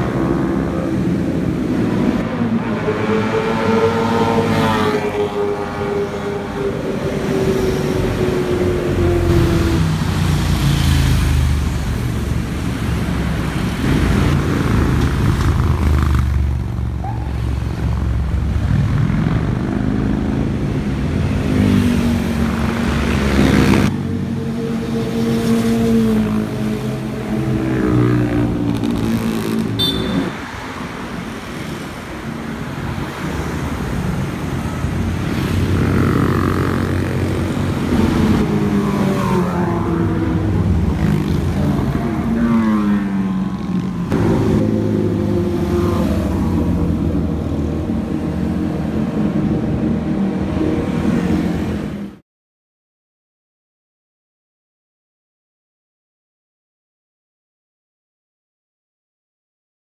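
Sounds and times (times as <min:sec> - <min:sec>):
passing car traffic: 0:00.0 - 0:52.2
motorcycles revving past: 0:13.2 - 0:20.6, 0:34.8 - 0:52.0.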